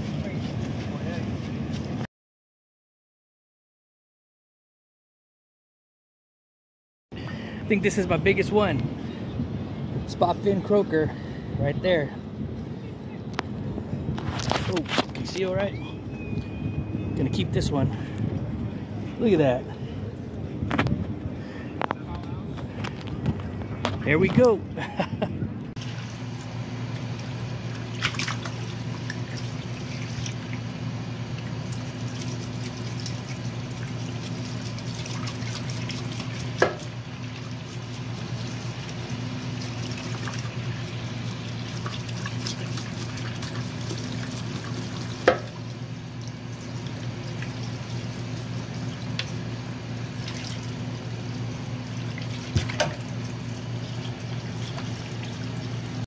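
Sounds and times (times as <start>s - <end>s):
tap running into metal sink: 52.4s - 53.0s.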